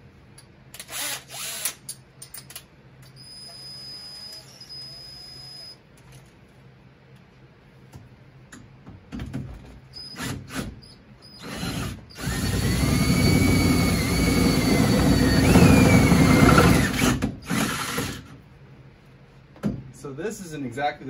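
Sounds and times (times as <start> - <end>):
cordless drill drilling metal: 0.8 - 1.8, 10.0 - 18.2
drill bit squealing: 3.1 - 5.8, 10.0 - 18.1.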